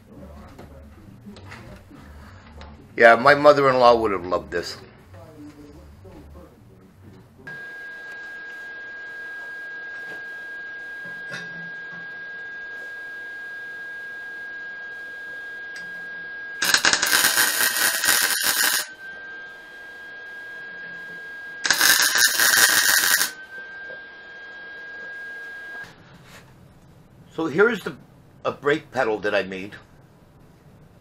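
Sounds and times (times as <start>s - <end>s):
steady high tone: 7.5s - 26.0s
welder arc crackling: 16.6s - 18.9s, 21.6s - 23.4s.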